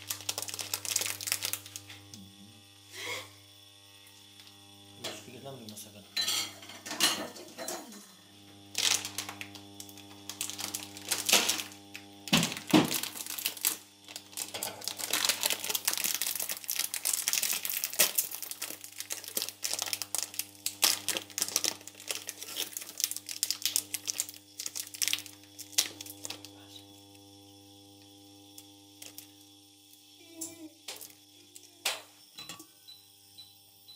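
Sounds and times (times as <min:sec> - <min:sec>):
plastic bag crinkling: 0:00.0 - 0:02.0, 0:08.7 - 0:26.6, 0:29.0 - 0:29.4
sharp crackles: 0:00.0 - 0:02.0, 0:12.5 - 0:26.5.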